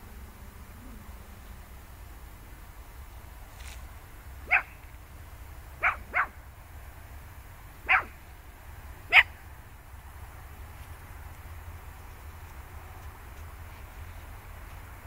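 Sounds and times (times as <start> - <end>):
dog barking: 4.4 - 4.8, 5.8 - 6.4, 7.8 - 8.2, 9.1 - 9.4.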